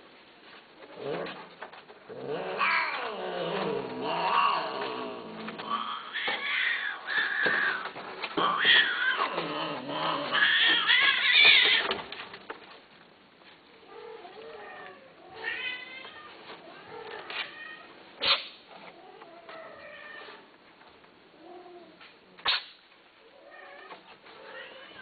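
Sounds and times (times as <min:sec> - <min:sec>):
cats meowing and yowling: 0:02.3 - 0:12.0, 0:13.9 - 0:17.9.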